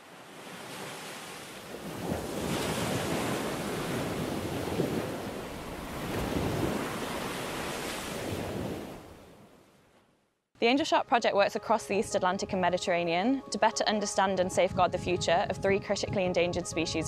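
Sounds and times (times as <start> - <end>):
waves breaking on shore: 0.0 - 10.1.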